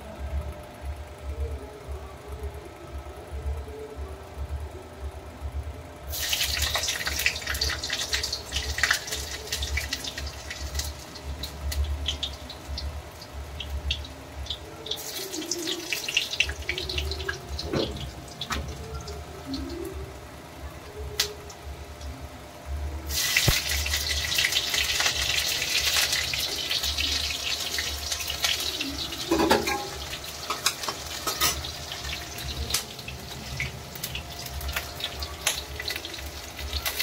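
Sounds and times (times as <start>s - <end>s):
dishes clinking: 29.2s - 31.7s.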